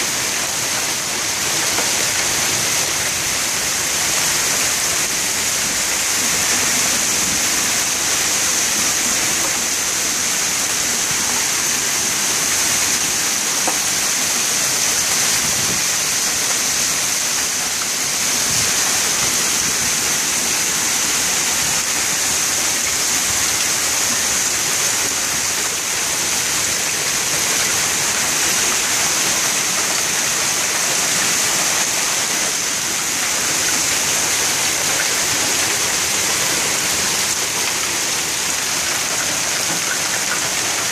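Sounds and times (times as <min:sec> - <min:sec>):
hail and heavy rain falling: 0:00.0 - 0:40.9.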